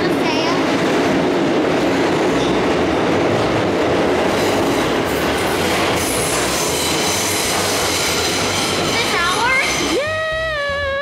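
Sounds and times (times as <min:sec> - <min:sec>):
subway wheels rumbling on rail: 0:00.0 - 0:10.0
high wheel squeal: 0:06.0 - 0:10.0.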